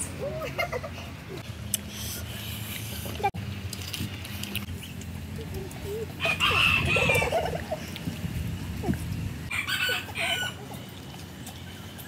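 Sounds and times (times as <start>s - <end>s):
rooster crowing: 6.2s - 7.3s, 9.5s - 10.6s.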